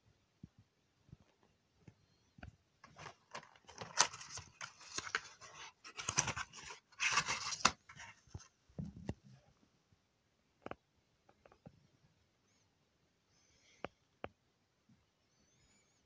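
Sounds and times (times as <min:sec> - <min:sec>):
cardboard and foil crinkling: 0:02.8 - 0:08.3.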